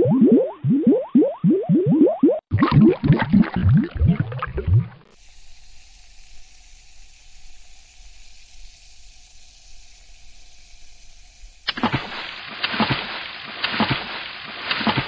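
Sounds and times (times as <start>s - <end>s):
water bubbling and gurgling: 0.0s - 5.2s
soft fizzing hiss: 5.1s - 13.7s.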